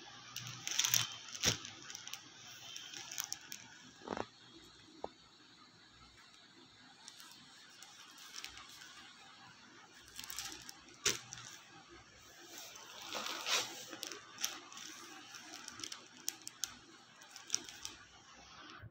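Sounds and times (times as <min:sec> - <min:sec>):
fabric rustling: 0:09.8 - 0:18.1.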